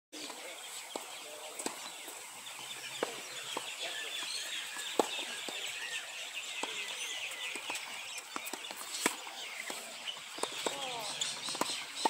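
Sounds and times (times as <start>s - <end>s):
birds chirping: 0.2s - 12.0s
tennis ball taps: 3.0s - 5.7s, 6.5s - 11.8s.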